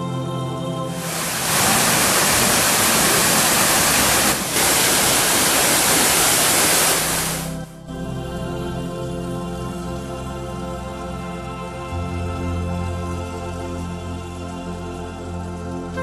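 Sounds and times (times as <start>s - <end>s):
calm new-age music: 0.0s - 1.7s, 7.0s - 16.0s
fountain water splashing: 0.9s - 7.6s.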